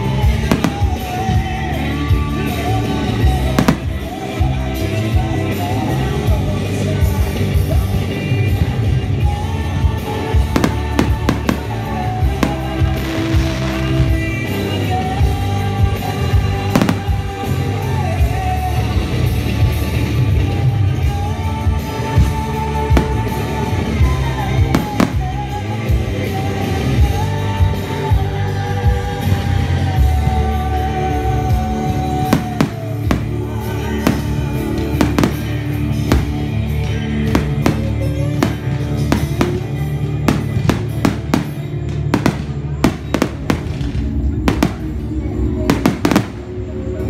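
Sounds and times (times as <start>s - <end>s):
music with singing and beat: 0.0s - 47.0s
fireworks bursting: 0.1s - 4.8s, 10.0s - 15.4s, 16.0s - 18.4s, 22.0s - 26.0s, 32.0s - 46.6s.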